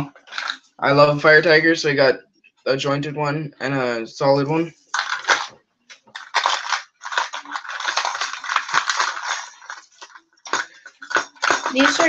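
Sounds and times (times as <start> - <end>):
plastic lures clattering in a box: 0.2 - 0.7, 5.0 - 12.0.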